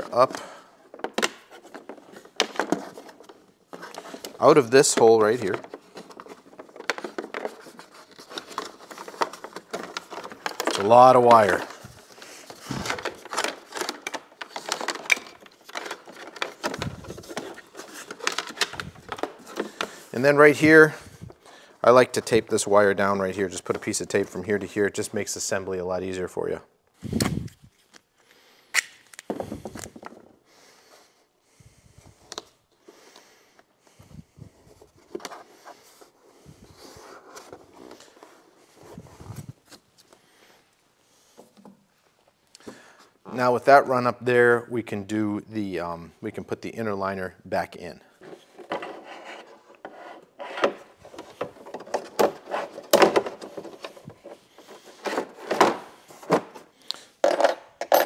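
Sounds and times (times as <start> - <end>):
rustling: 1.4 - 21.4
wire scraping through plastic: 48.2 - 55.6.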